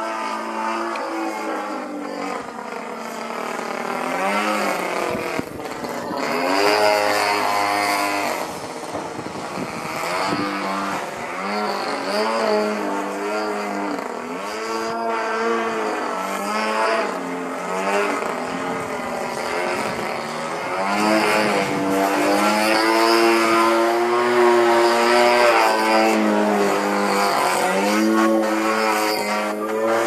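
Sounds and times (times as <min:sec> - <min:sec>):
model airplane engine: 0:00.0 - 0:30.0.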